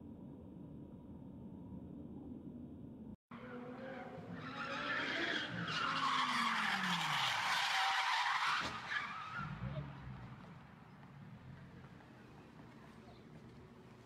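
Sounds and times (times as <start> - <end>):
tyres squealing on asphalt: 3.5 - 9.8.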